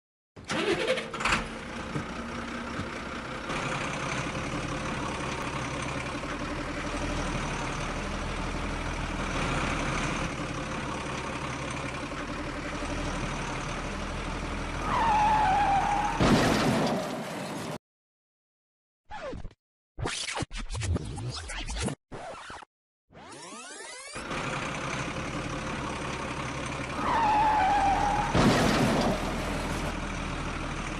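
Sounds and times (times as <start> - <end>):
truck engine running: 0.4 - 17.8, 24.2 - 30.9.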